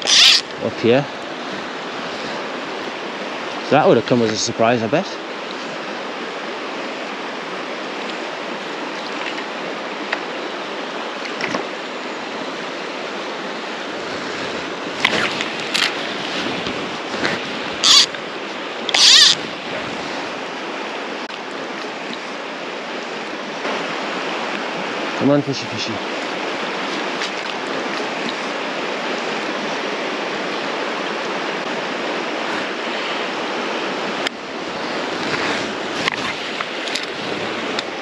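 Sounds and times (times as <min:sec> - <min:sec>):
river water rushing: 0:00.0 - 0:38.0
short sharp noise bursts: 0:17.8 - 0:18.2, 0:18.9 - 0:19.5.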